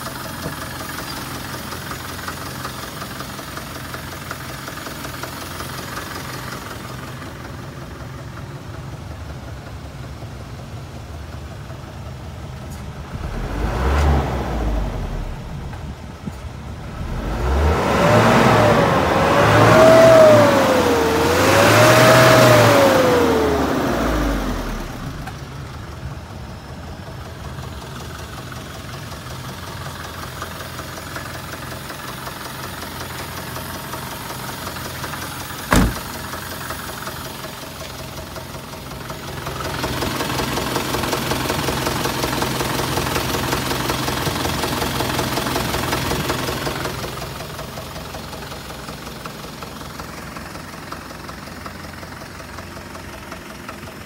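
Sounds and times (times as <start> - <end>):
truck engine revving and idling: 0.0 - 54.0
sharp knock: 35.7 - 36.2.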